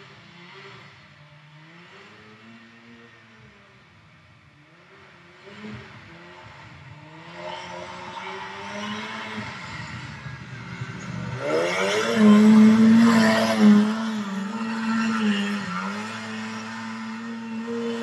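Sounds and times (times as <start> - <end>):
kart engine revving hard: 5.2 - 18.0.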